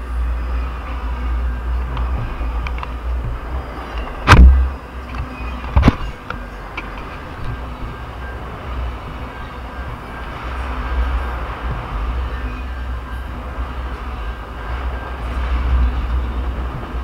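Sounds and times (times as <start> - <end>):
freight train rumbling past: 0.0 - 17.0
loud bangs: 4.0 - 4.9.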